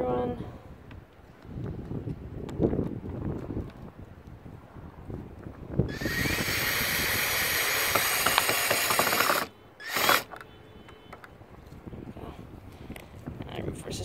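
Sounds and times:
cordless drill driving a screw: 0:05.9 - 0:10.4.

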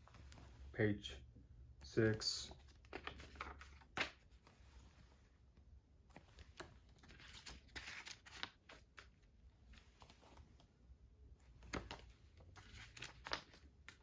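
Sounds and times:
book pages turning: 0:02.0 - 0:05.1, 0:06.0 - 0:10.7, 0:11.4 - 0:14.0.

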